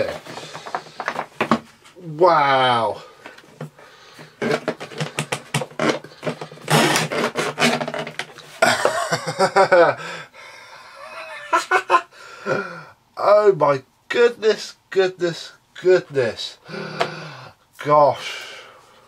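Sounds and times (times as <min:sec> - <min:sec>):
man exclaiming: 0:02.0 - 0:03.0
man laughing: 0:08.6 - 0:12.8.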